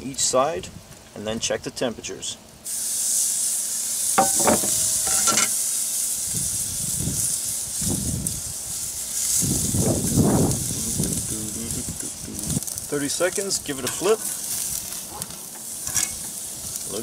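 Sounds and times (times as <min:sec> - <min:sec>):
steak sizzling on a grill: 0:01.4 - 0:17.0
metal tongs clinking on grate: 0:04.2 - 0:05.6, 0:13.7 - 0:14.4, 0:15.2 - 0:16.3.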